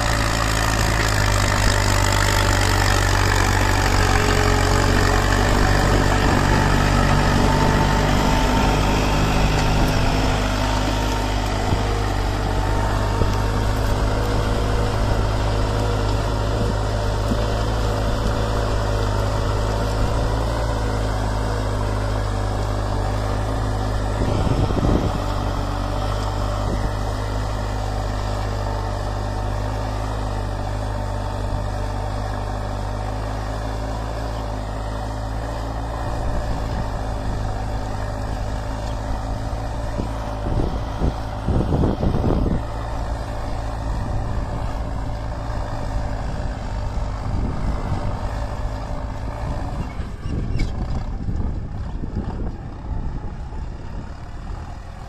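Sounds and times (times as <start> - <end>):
tractor diesel engine under load: 0.0 - 55.0.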